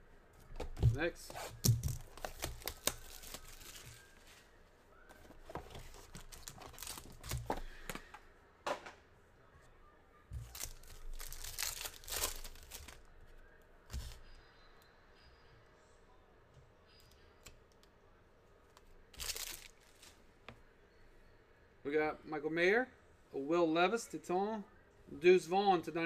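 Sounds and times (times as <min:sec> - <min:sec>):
foil wrappers crinkling and tearing: 0:01.5 - 0:04.4, 0:05.8 - 0:07.6, 0:10.4 - 0:13.1, 0:19.1 - 0:20.2.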